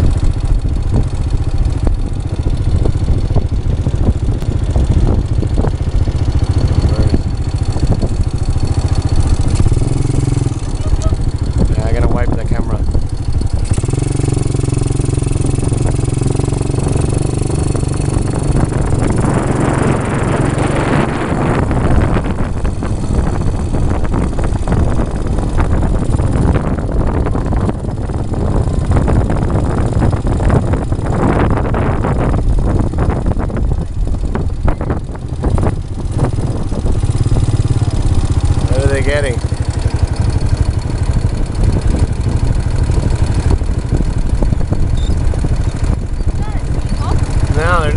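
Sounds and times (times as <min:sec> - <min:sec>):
quad bike engine running: 0:00.0 - 0:47.9.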